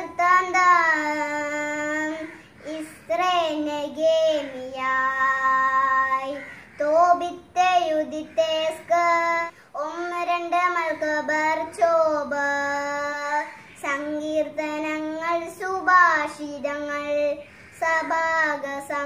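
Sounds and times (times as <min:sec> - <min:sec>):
girl chanting in sing-song voice: 0:00.0 - 0:19.0.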